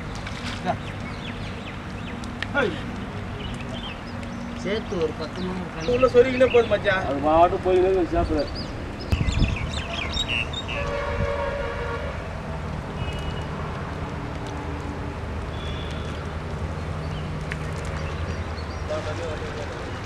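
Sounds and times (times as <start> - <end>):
horn-like pitched tone: 10.7 - 12.2.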